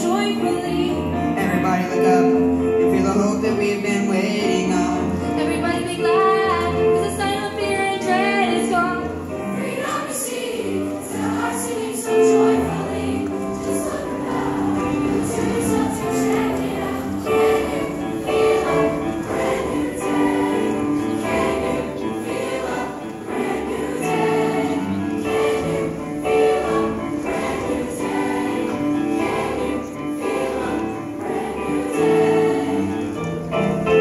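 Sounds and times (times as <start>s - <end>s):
choir singing in harmony: 0.0s - 34.0s
instrumental accompaniment: 0.0s - 34.0s.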